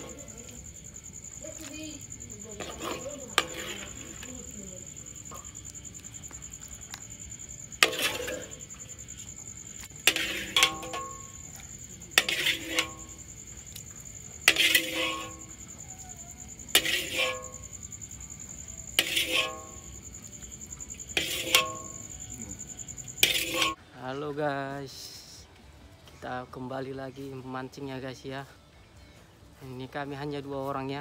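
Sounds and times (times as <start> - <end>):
high insect drone: 0.0 - 23.8
metal spatula clinking on wok: 10.1 - 11.4.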